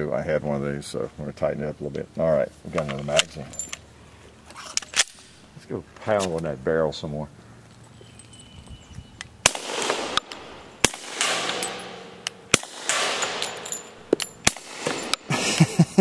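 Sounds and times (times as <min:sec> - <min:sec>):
suppressed pistol shots: 0:09.4 - 0:15.3.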